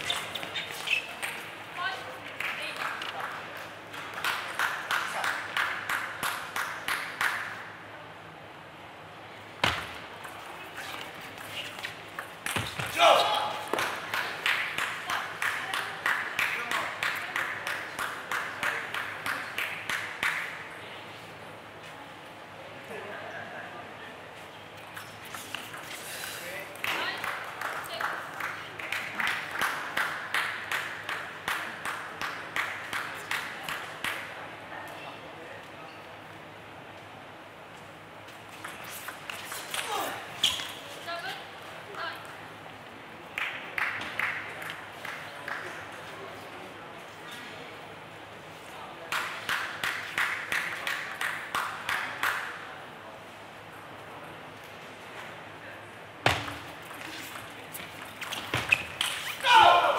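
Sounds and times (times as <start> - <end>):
spectators clapping in rhythm: 2.2 - 7.6, 13.7 - 20.7, 26.8 - 34.3, 43.2 - 45.9, 49.1 - 52.7.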